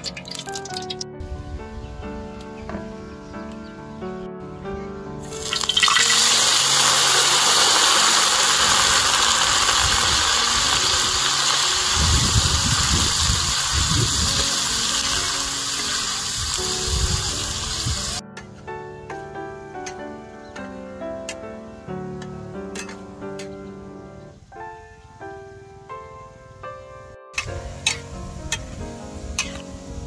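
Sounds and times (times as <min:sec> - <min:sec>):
food sizzling in hot oil: 0:00.0 - 0:01.1, 0:05.2 - 0:18.2.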